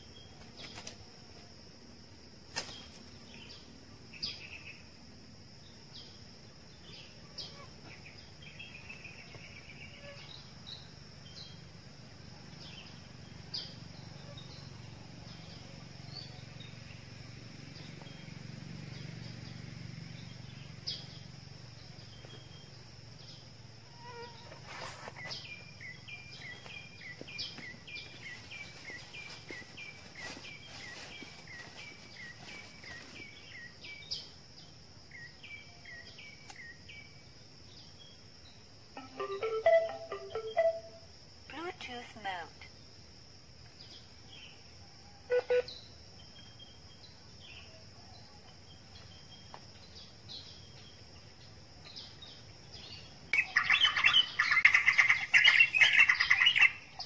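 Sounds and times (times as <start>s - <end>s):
high insect drone: 0.0s - 57.0s
short bird chirps: 24.3s - 26.6s
bird call of falling notes: 39.0s - 41.0s.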